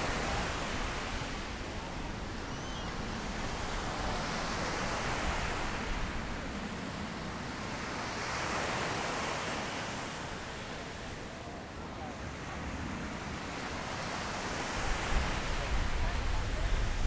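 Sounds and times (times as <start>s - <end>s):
waves washing onto sandy beach: 0.0s - 17.0s
wind buffeting microphone: 14.8s - 17.0s.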